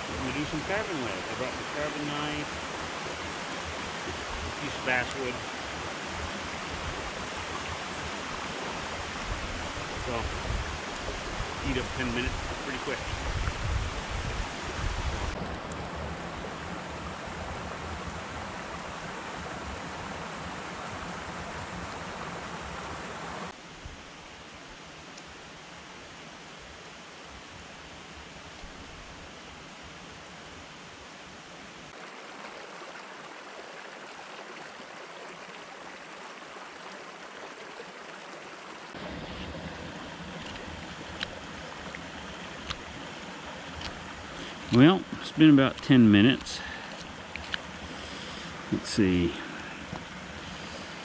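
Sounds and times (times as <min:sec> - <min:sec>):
stream running: 0:00.0 - 0:51.0
knife cutting wood clicks: 0:43.8 - 0:44.0.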